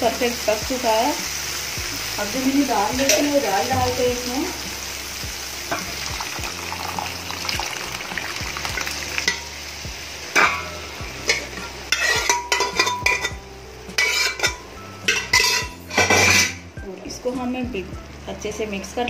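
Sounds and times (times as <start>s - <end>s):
sauce sizzling in a pan: 0.0s - 16.8s
metal spoon scraping a pan: 10.3s - 16.7s.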